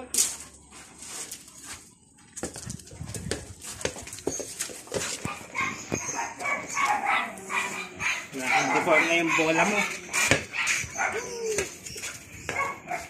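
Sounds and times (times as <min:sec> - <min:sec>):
scuffs and knocks of movement: 0:00.3 - 0:08.0
dog whining and yipping: 0:04.1 - 0:13.0.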